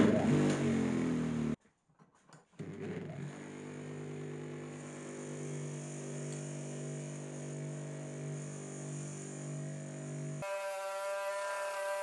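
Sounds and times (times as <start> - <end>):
bench grinder motor running: 2.6 - 12.0.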